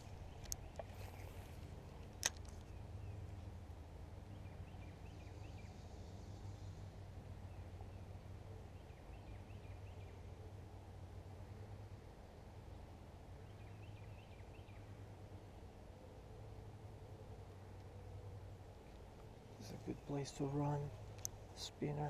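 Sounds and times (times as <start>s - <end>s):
faint bird chirps: 4.3s - 10.6s.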